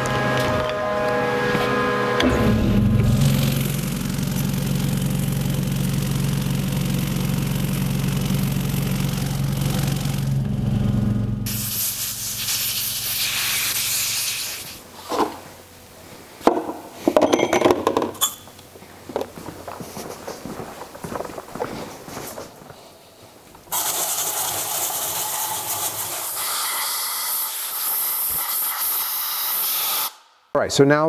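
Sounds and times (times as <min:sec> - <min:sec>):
shop machine humming: 0:00.0 - 0:21.0
compressed air blow gun hissing: 0:11.5 - 0:15.0, 0:23.7 - 0:30.2.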